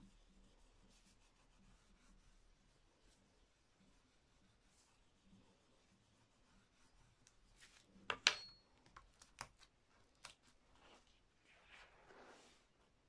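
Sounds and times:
metal spoon clinking on table: 0:08.1 - 0:08.7.

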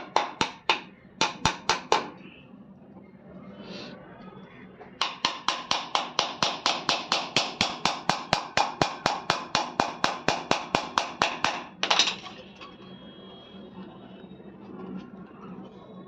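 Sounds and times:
hammer tapping nails into wood: 0:00.0 - 0:02.1, 0:05.0 - 0:12.0.

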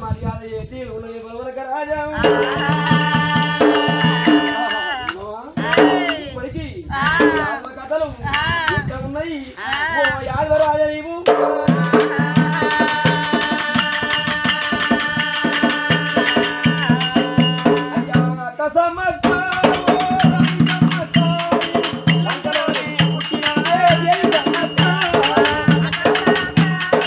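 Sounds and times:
person singing: 0:02.1 - 0:07.7, 0:11.2 - 0:27.0
fast drumming: 0:02.2 - 0:06.3, 0:07.0 - 0:07.6, 0:11.3 - 0:18.4, 0:19.2 - 0:27.0
jingling percussion: 0:02.2 - 0:07.6, 0:08.3 - 0:08.9, 0:09.6 - 0:10.2, 0:11.3 - 0:18.6, 0:19.2 - 0:27.0.

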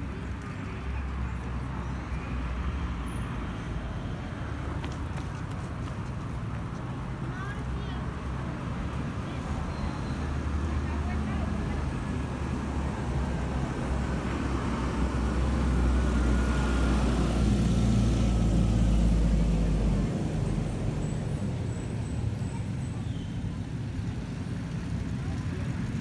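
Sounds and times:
steady traffic hum: 0:00.0 - 0:26.0
vehicle engine rumble: 0:00.0 - 0:26.0.

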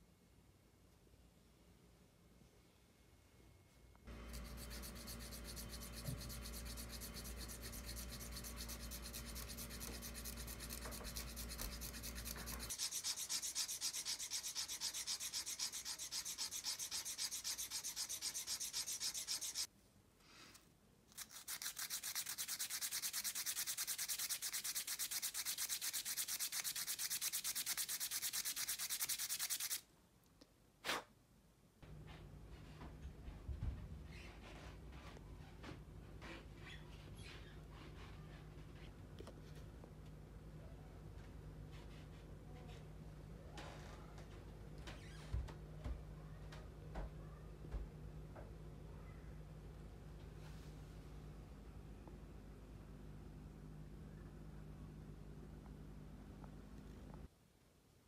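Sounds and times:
hand file rasping on stone: 0:04.1 - 0:19.7, 0:21.2 - 0:29.8.

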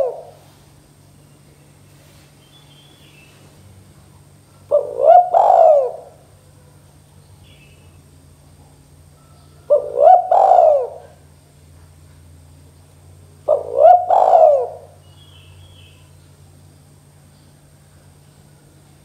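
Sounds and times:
dove cooing: 0:00.0 - 0:00.5, 0:04.6 - 0:06.8, 0:09.0 - 0:11.4, 0:13.4 - 0:15.9.

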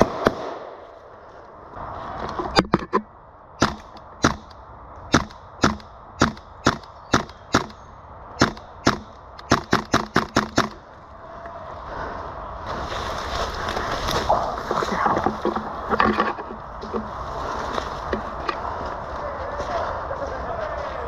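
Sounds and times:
airsoft gun shots: 0:00.0 - 0:00.8, 0:08.4 - 0:10.8.

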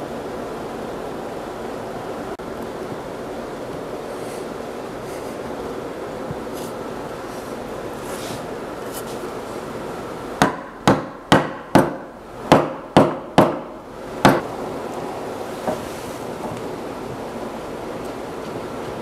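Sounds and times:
hammer knocking on wood: 0:10.4 - 0:14.5.

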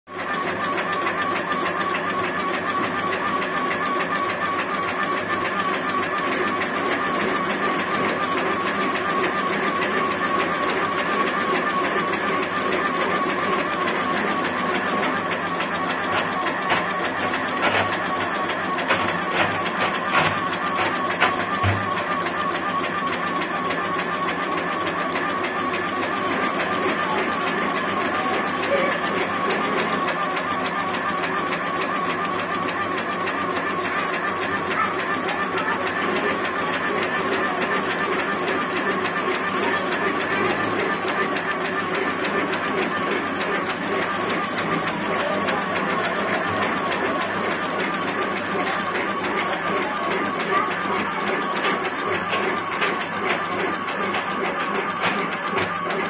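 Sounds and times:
machine mechanical chatter: 0:00.1 - 0:56.0
machine clicks: 0:35.4 - 0:56.0.

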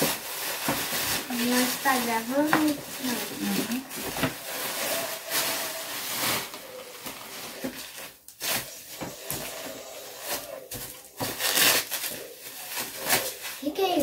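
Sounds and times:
plastic and bubble wrap rustling: 0:00.0 - 0:14.0.

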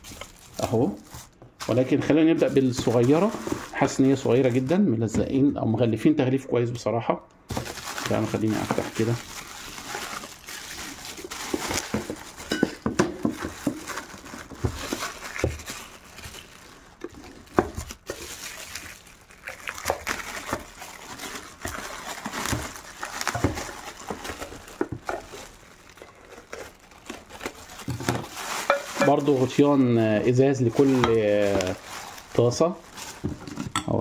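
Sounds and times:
plastic wrapping crinkling: 0:00.0 - 0:05.1, 0:07.5 - 0:33.8.

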